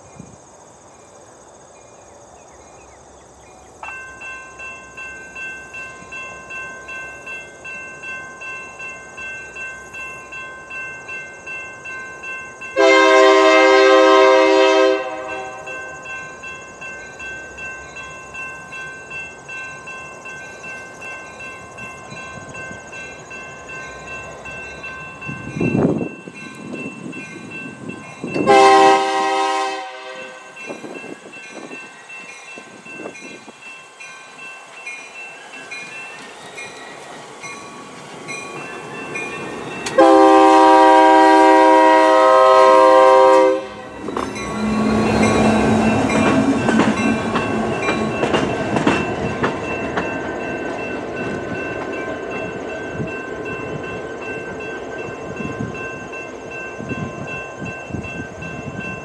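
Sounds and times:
train engine and wheels rumbling: 0.0 - 59.0
crossing bell ringing: 3.8 - 59.0
locomotive air horn blasts: 12.8 - 15.8, 28.4 - 30.6, 40.0 - 45.2.

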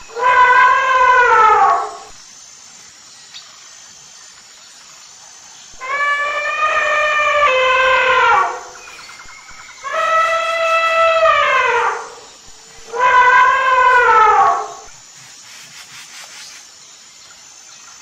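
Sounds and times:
elephant trumpeting: 0.1 - 2.1, 5.8 - 8.8, 9.8 - 14.9.

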